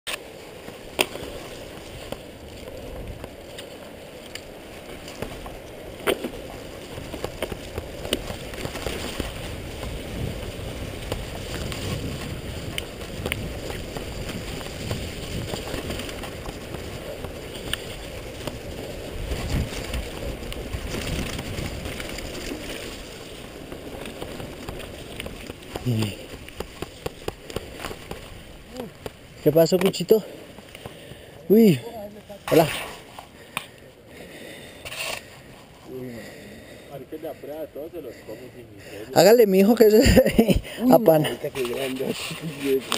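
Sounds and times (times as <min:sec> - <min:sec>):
bike tyre rumble on dirt trail: 0:00.1 - 0:42.9
wind on microphone: 0:01.1 - 0:29.4.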